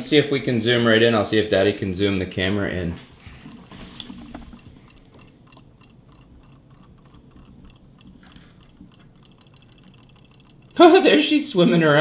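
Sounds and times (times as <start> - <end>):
toy fish tail mechanism ticking: 3.1 - 11.6.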